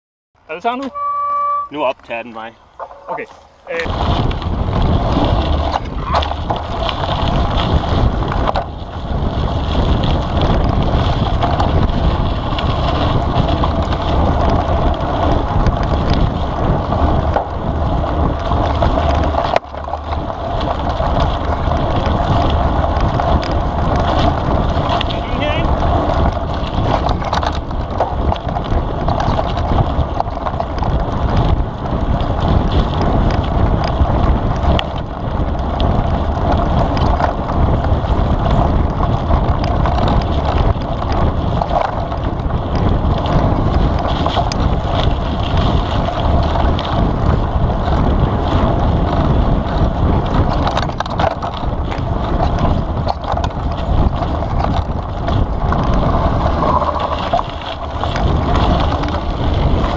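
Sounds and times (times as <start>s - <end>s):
wind noise on microphone: 0.4s - 59.9s
bike knocks and rattles: 2.8s - 59.9s
tyre rumble on dirt: 3.0s - 59.9s.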